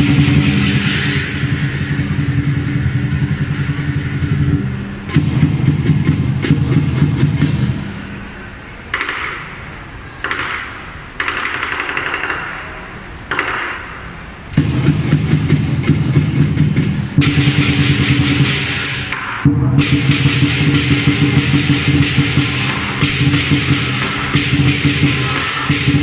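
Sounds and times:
fast drum roll: 0.0 - 8.4, 14.5 - 26.0
cymbals crashing: 0.0 - 26.0.

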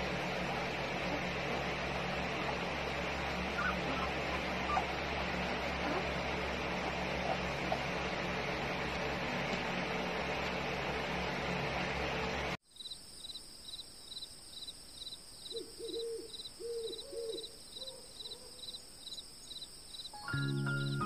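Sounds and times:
short whining calls: 0.0 - 8.4
crickets chirping: 12.6 - 21.0.

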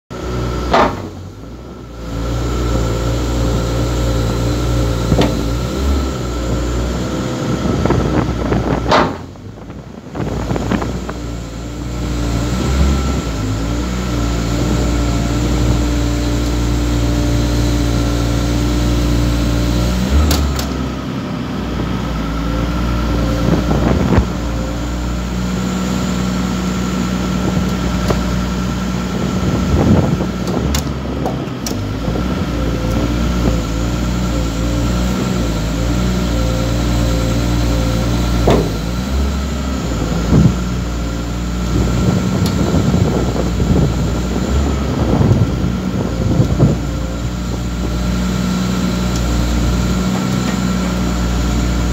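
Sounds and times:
diesel engine running: 0.1 - 51.9
hydraulic whine: 0.1 - 51.9
sharp knocks: 0.7 - 1.2, 8.9 - 9.3.

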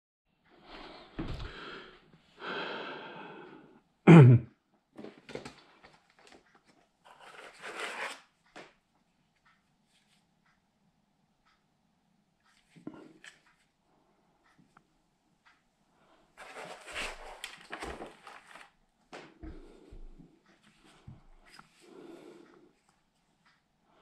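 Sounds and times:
case rubbing and scraping: 7.1 - 8.2.

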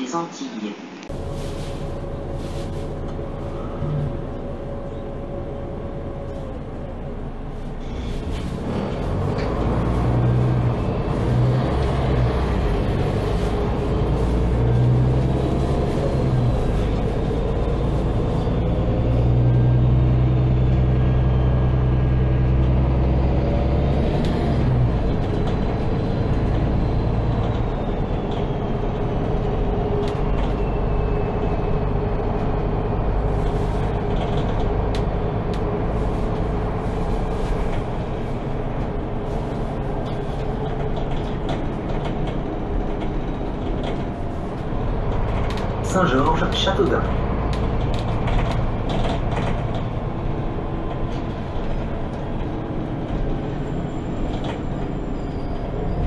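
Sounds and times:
bus engine drone: 0.0 - 56.0
light rattles and clicks: 39.3 - 53.5.

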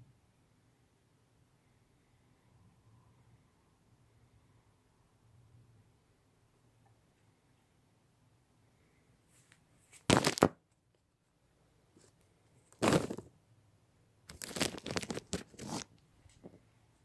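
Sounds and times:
microphone handling rustling: 12.8 - 13.3.

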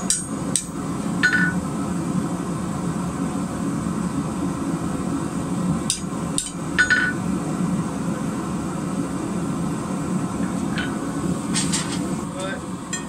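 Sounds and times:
hammer striking steel on anvil: 0.0 - 1.6, 5.9 - 7.2
steady low hum: 0.0 - 13.0.

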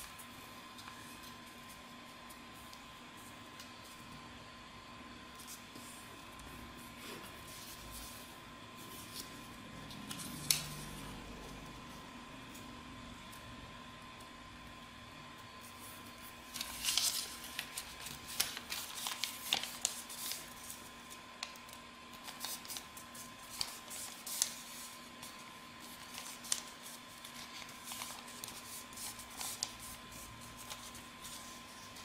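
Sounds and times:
paper rustling and crinkling: 15.7 - 32.0.

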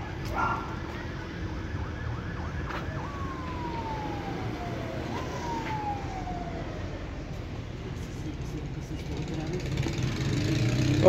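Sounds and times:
siren yelping and wailing: 0.0 - 7.7
low street rumble: 0.0 - 11.0.

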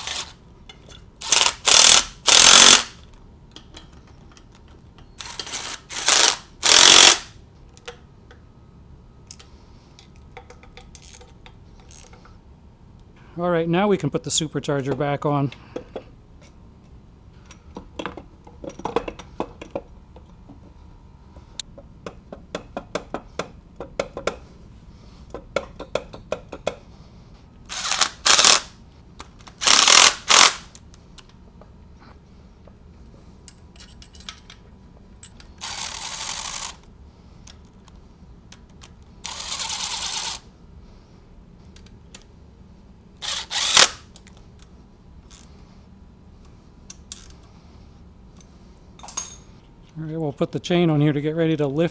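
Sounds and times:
power tool driving bolts: 0.0 - 0.4, 1.2 - 3.0, 5.2 - 7.3, 27.7 - 28.7, 29.5 - 30.7, 35.6 - 36.8, 39.2 - 40.4, 43.2 - 44.1
metal tools and bolts clinking: 0.0 - 1.5, 3.5 - 6.2, 33.4 - 36.6, 49.0 - 49.6.

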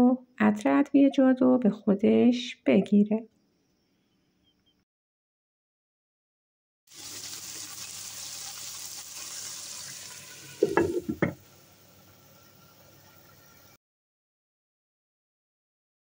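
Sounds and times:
meat sizzling in a frying pan: 6.9 - 13.0
glass lid clattering on pan: 10.6 - 11.4.

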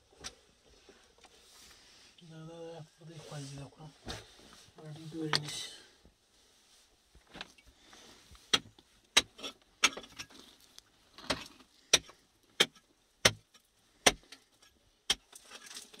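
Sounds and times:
hand tool striking rock: 11.9 - 14.3, 15.1 - 15.4.

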